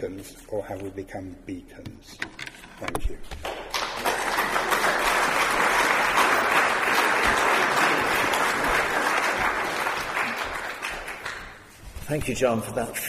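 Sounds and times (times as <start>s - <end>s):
audience applauding: 3.4s - 11.7s.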